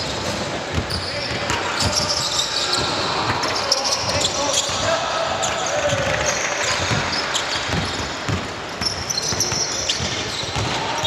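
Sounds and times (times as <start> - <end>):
shoe squeaks: 0.0 - 4.8, 5.8 - 11.0
background hubbub: 0.0 - 11.0
basketball bouncing on floor: 6.8 - 10.8.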